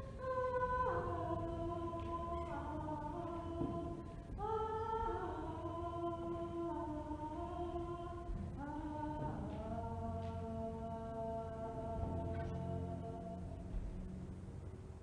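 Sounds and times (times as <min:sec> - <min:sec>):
woman singing wordless notes: 0:00.0 - 0:13.8.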